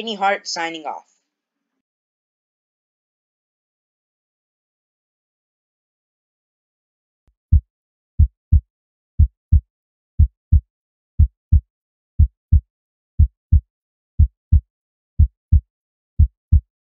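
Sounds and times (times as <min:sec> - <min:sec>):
heartbeat thumps: 0:08.2 - 0:08.6, 0:10.2 - 0:10.6, 0:11.2 - 0:11.6, 0:12.2 - 0:12.6, 0:13.2 - 0:13.6, 0:14.2 - 0:14.6, 0:15.2 - 0:15.6, 0:16.2 - 0:16.7.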